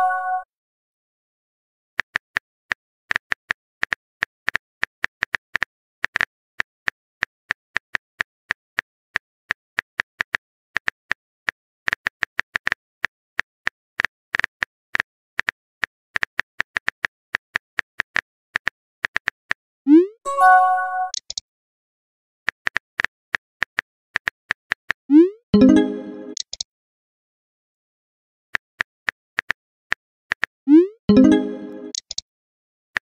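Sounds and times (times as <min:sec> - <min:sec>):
phone keyboard typing clicks: 0:21.1 - 0:21.4, 0:25.6 - 0:26.6, 0:31.1 - 0:32.2.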